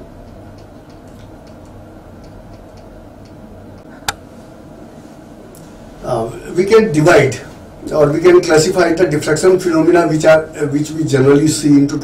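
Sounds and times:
faint ticking: 0.0 - 4.2
low room hum: 0.0 - 12.0.

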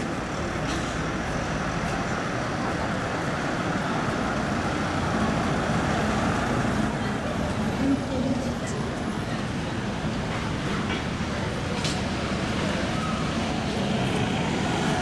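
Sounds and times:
bus diesel engine running: 0.0 - 15.0
street traffic noise: 0.0 - 15.0.

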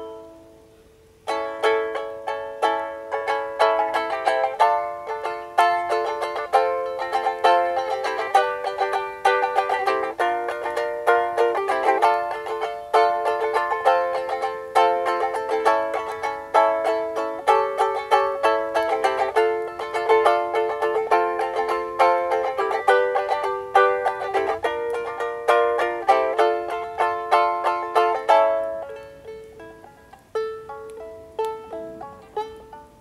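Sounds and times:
ukulele strumming chords: 0.0 - 33.0.

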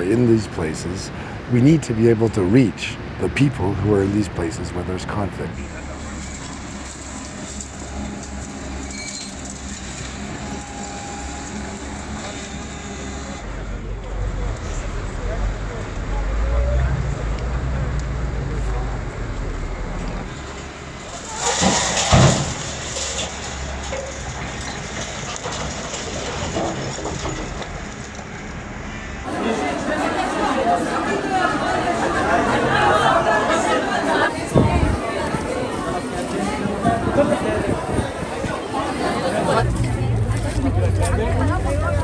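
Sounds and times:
excavator diesel engine rumbling: 0.0 - 42.0
debris rattling: 21.0 - 28.2.

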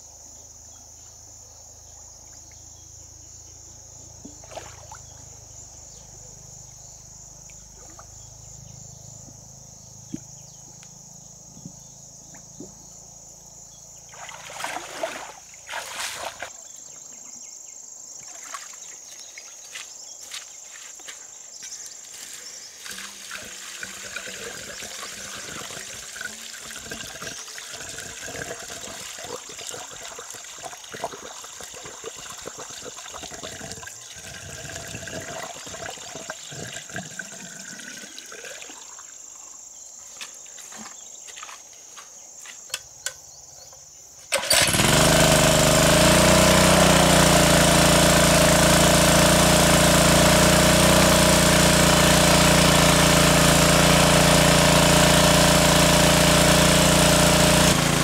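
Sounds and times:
high insect drone: 0.0 - 44.8
water trickling and splashing: 4.2 - 5.3, 14.1 - 16.6, 22.1 - 39.6.

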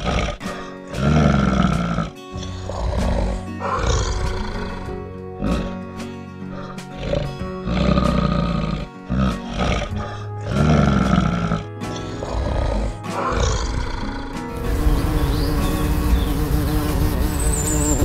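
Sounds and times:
bear growling: 0.0 - 14.6
background music: 0.0 - 18.0
bee buzzing: 12.9 - 18.0.

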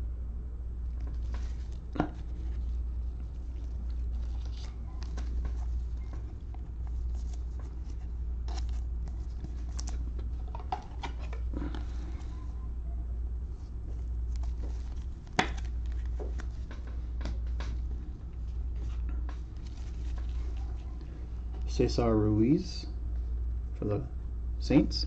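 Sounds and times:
steady low hum: 0.0 - 25.0
cards sliding and tapping: 14.3 - 17.9.

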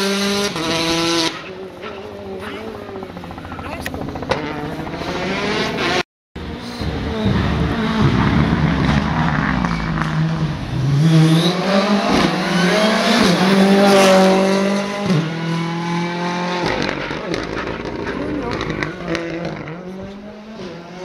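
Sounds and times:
rally car engine passing by: 4.4 - 21.0.

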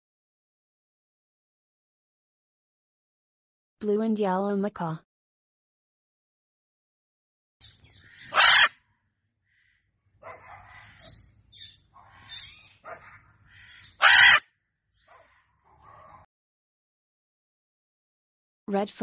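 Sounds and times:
parrot squawking: 7.9 - 8.8, 10.3 - 15.4
parrot chatter: 8.0 - 8.7, 12.0 - 14.4.

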